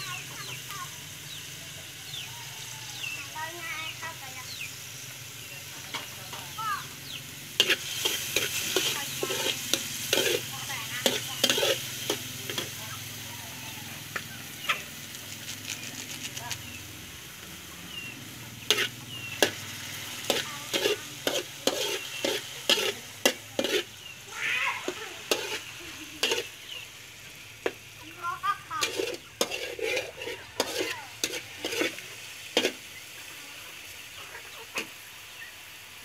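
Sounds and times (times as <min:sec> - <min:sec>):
faint sizzle: 0:00.0 - 0:36.0
metal spatula scraping a wok: 0:07.5 - 0:13.3, 0:18.6 - 0:24.2, 0:24.8 - 0:27.0, 0:28.6 - 0:33.4.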